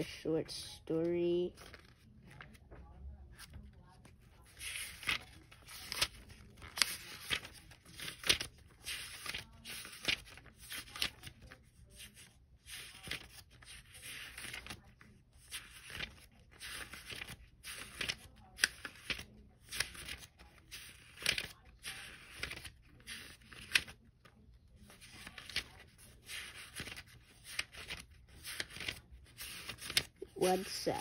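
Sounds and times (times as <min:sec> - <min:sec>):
comic pages flipping: 0:01.6 - 0:31.0.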